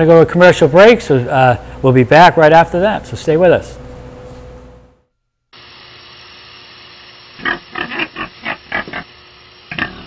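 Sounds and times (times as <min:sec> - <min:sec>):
steady hiss: 0:05.5 - 0:10.0
pig grunting: 0:07.4 - 0:09.1, 0:09.7 - 0:10.0.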